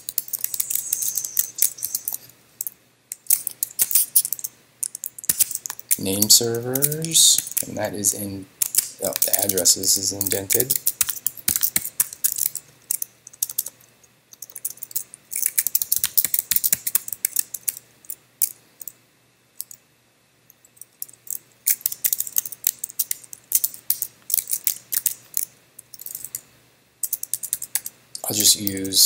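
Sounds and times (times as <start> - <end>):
computer keyboard typing: 0.0 - 2.3, 3.1 - 7.8, 8.6 - 13.8, 14.4 - 17.8, 21.1 - 25.2, 27.0 - 29.0.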